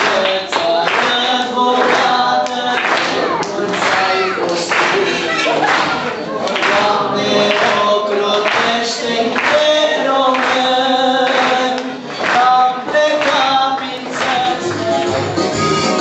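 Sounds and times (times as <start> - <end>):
group of voices singing: 0.0 - 16.0
hands clapping: 0.0 - 16.0.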